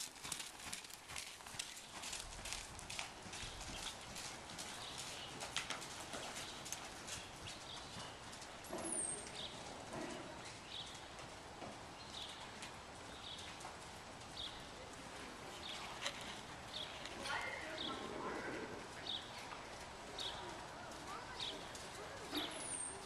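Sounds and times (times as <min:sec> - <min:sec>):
horse hoofbeats on soft sand: 0:00.0 - 0:18.2.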